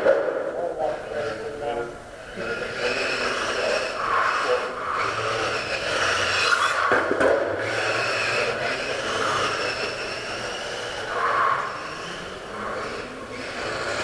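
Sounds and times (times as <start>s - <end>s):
radio-controlled cars motor whine: 0.0s - 14.0s.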